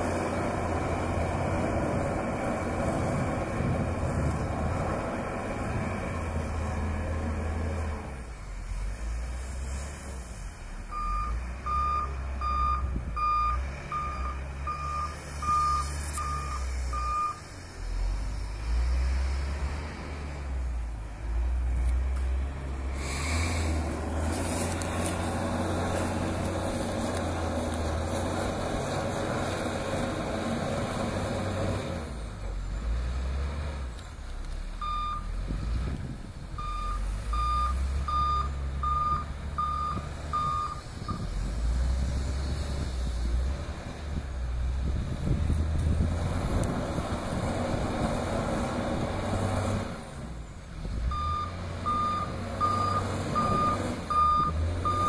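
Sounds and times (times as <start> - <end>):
diesel engine revving: 0.0 - 55.0
reversing alarm beeping: 10.9 - 17.4, 34.8 - 35.3, 36.6 - 41.2, 51.1 - 55.0.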